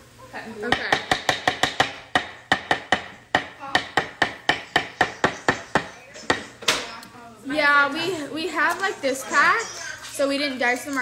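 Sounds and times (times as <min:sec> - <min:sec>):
utensil knocking on wooden bowl: 0:00.7 - 0:06.5.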